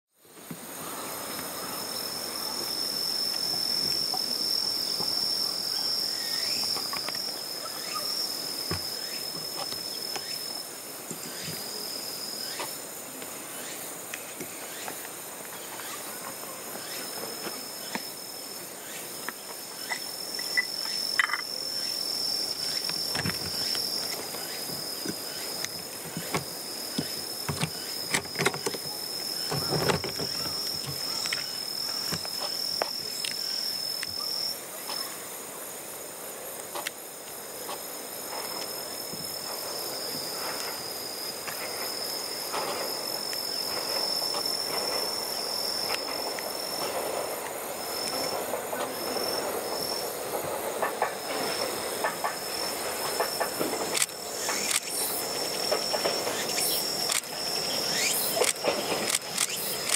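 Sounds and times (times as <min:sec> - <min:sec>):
cicadas droning: 0:00.1 - 0:59.9.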